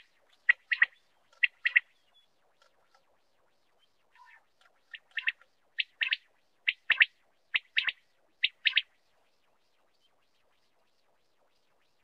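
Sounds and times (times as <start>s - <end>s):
quail calling: 0.0s - 1.9s, 4.2s - 8.8s.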